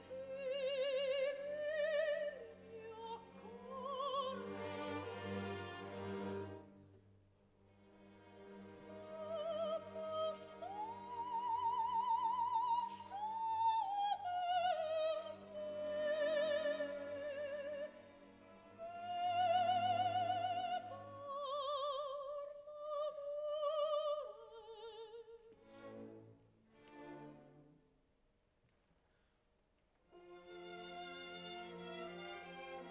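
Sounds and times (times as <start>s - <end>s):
woman singing opera: 0.0s - 4.5s, 9.0s - 25.6s
soft orchestral accompaniment: 0.0s - 27.9s, 30.1s - 32.9s.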